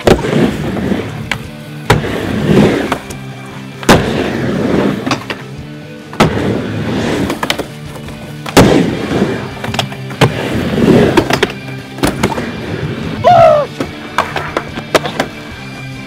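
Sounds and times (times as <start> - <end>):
skateboard clacking on ramp: 13.8 - 15.4.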